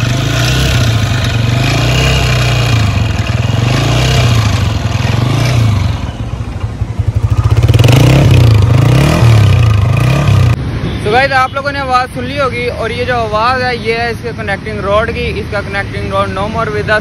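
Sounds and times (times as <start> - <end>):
motorcycle engine running: 0.0 - 10.6.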